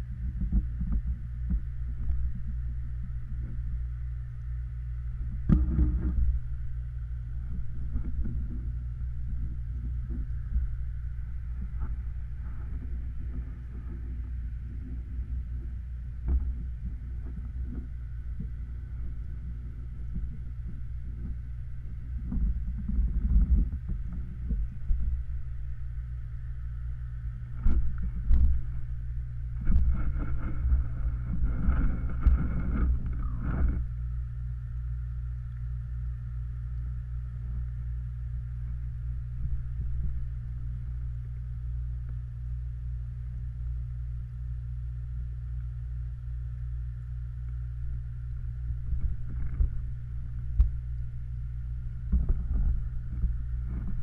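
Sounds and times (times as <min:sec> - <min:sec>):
underwater mechanical hum: 0:00.0 - 0:54.0
knocks and rustles: 0:52.0 - 0:54.0.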